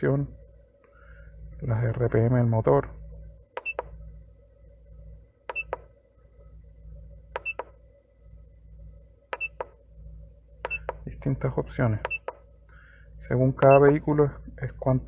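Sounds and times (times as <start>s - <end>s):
keypad button clicks with beeps: 3.6s - 4.0s, 5.5s - 5.9s, 7.4s - 7.8s, 9.3s - 9.8s, 10.6s - 11.0s, 12.0s - 12.4s, 13.6s - 13.9s.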